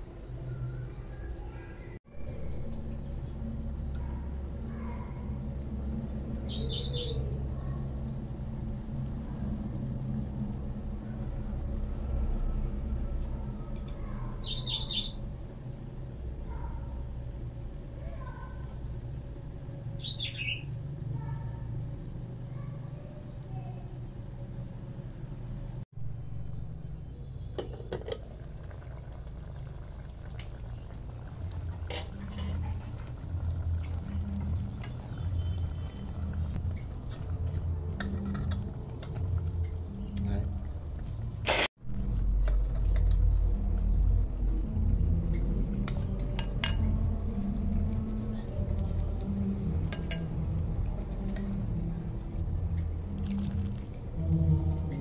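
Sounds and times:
small bird chirping: 0.0s - 9.7s, 10.7s - 21.6s, 34.1s - 37.2s
pot bubbling at a boil: 27.0s - 54.9s
steady low rumble: 36.1s - 55.0s.

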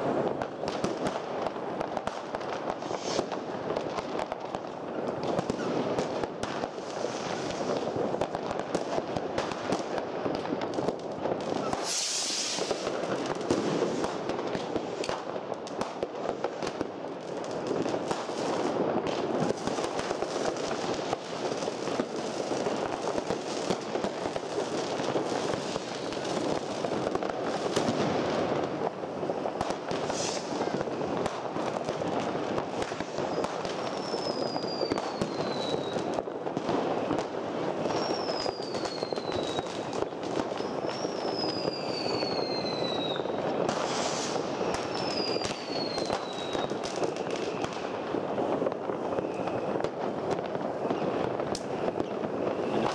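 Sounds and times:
firecrackers going off: 0.0s - 52.9s
firework hiss: 0.0s - 52.9s
fireworks crackling and popping: 0.0s - 52.9s.

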